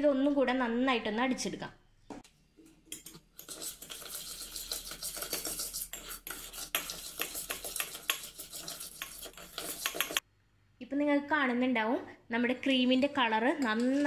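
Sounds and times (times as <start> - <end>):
spoon scraping and clinking pot: 2.6 - 10.2.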